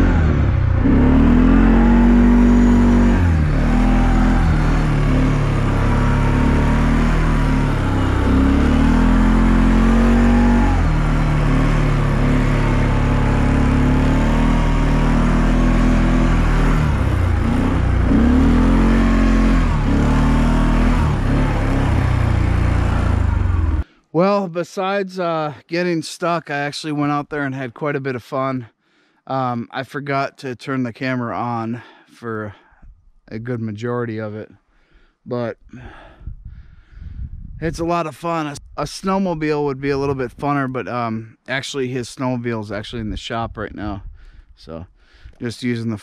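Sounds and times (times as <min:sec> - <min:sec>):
atv engine revving: 0:00.0 - 0:23.9.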